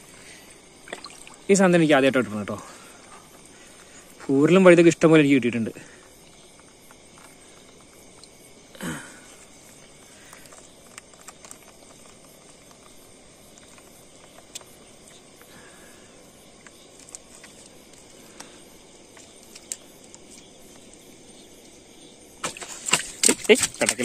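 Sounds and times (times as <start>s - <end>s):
insects chirping: 0.0s - 24.0s
clicks and rustles of net: 10.2s - 14.7s, 16.6s - 18.5s, 19.1s - 21.0s, 22.4s - 24.0s.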